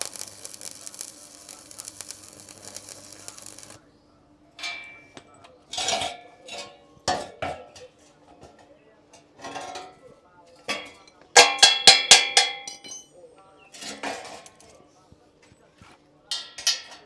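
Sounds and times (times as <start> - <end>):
crackling welding arc: 0.0 - 3.8
sharp metallic clanks: 4.6 - 7.8.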